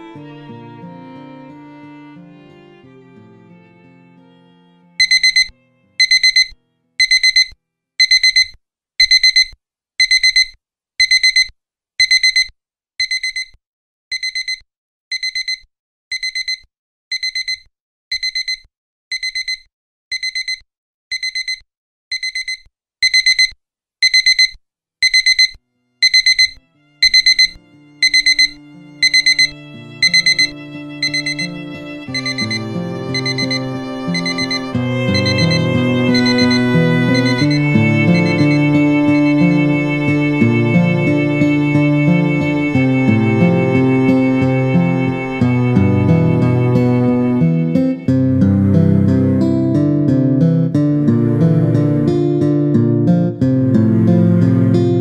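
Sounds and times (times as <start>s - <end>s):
music: 0.0s - 6.0s, 25.7s - 26.0s, 26.6s - 55.0s
alarm clock beeping: 5.0s - 47.2s.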